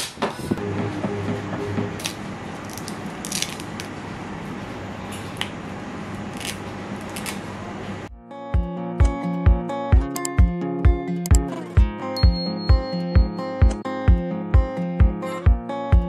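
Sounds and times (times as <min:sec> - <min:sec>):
machine fan whirring: 0:00.1 - 0:08.1.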